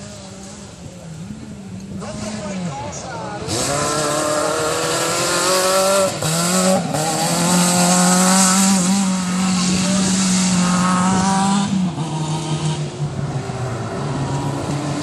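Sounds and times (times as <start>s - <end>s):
car engine revving high: 3.4s - 15.0s.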